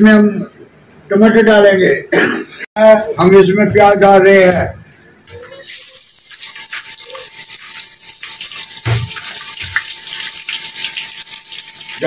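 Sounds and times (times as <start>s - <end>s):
onions sizzling in hot fat: 5.2s - 12.0s.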